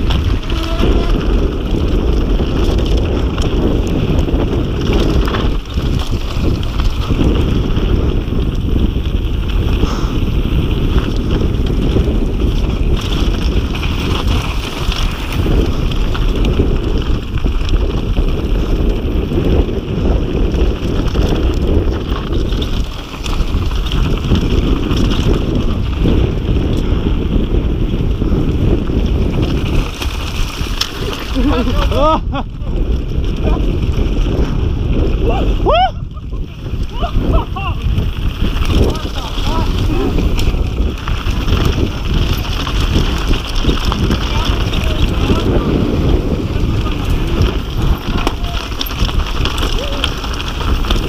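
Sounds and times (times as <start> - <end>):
bike rattling and knocking: 0.0 - 51.0
bike tyres rumbling on gravel: 0.0 - 51.0
wind buffeting microphone: 0.0 - 51.0.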